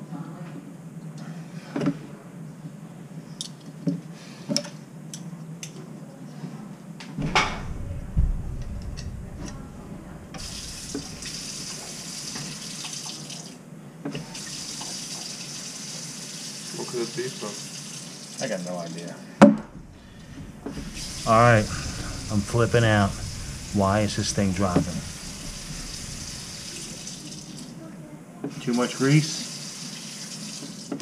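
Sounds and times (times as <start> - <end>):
water running into sink: 10.3 - 19.2, 20.2 - 27.8, 28.6 - 31.0.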